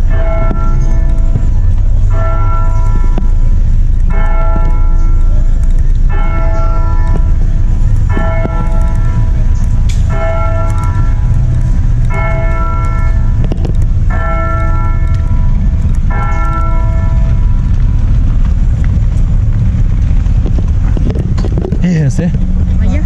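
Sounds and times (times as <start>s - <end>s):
church bell tolling: 0.0s - 17.8s
low steady rumble: 0.0s - 23.0s.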